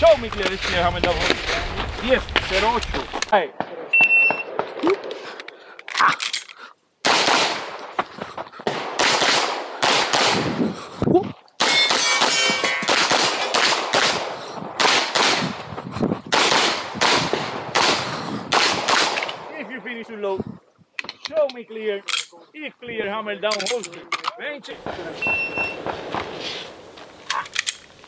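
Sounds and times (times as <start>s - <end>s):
pistol shots: 7.0s - 7.9s, 8.6s - 10.6s, 11.6s - 15.7s, 16.3s - 19.5s, 24.8s - 26.4s.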